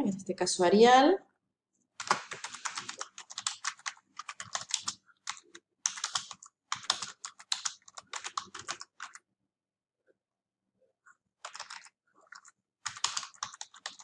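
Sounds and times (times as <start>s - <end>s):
typing on computer keyboard: 2.0s - 9.2s, 11.4s - 14.0s.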